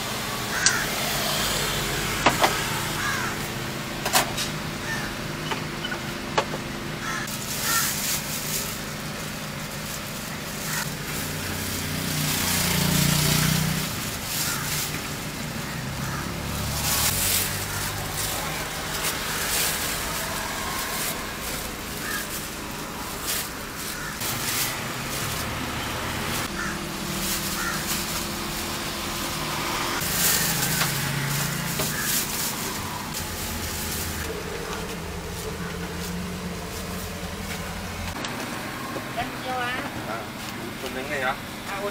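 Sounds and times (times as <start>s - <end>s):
road traffic: 0.0s - 41.9s
vehicles passing: 0.0s - 41.9s
plastic bags rustling: 7.0s - 38.4s.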